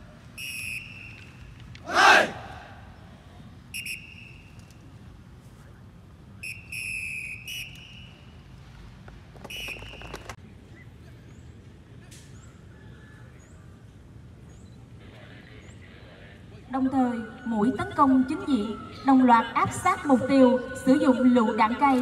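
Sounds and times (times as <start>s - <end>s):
whistle blasts: 0.4s - 2.1s, 3.7s - 4.6s, 6.4s - 8.4s, 9.4s - 10.3s.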